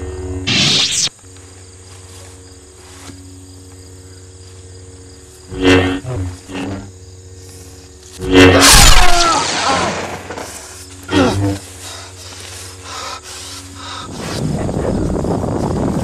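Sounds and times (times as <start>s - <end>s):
lightsaber electric hum: 0.0s - 16.0s
lightsaber swinging whoosh: 5.5s - 6.9s, 8.2s - 9.8s.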